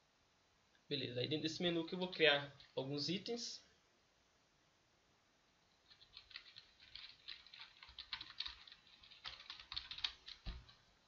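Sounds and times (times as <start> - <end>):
keyboard typing: 5.8 - 10.9.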